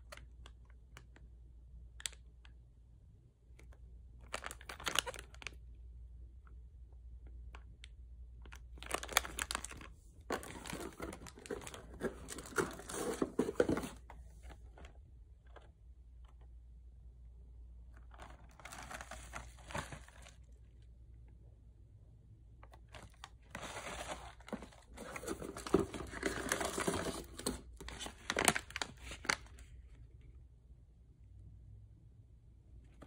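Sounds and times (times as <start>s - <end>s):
plastic packaging crinkling: 4.2s - 5.6s, 8.4s - 14.9s, 18.0s - 20.5s, 22.8s - 29.7s.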